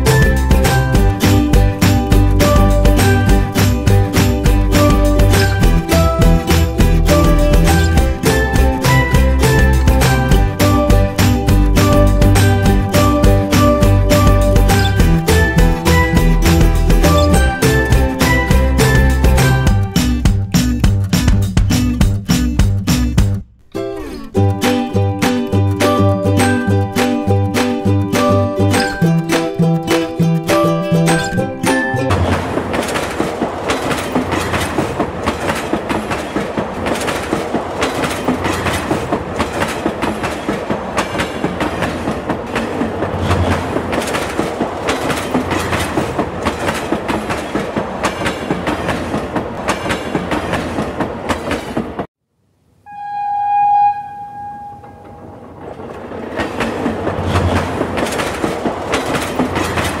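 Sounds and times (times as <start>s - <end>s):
train wheels clickety-clack: 0.0s - 22.8s, 25.8s - 52.1s, 55.0s - 60.0s
train horn blast: 52.9s - 55.3s.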